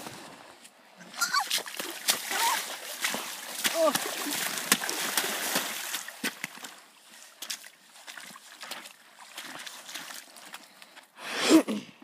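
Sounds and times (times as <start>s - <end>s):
water sloshing: 0.9s - 10.8s
person shouting: 3.7s - 4.1s.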